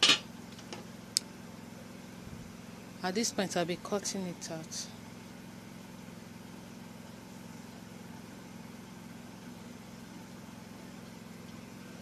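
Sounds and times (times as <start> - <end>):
low droning hum: 1.8 - 5.0.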